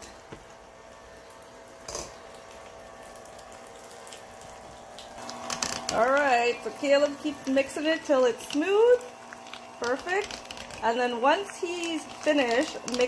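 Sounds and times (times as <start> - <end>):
electric hand mixer whining: 5.2 - 13.0.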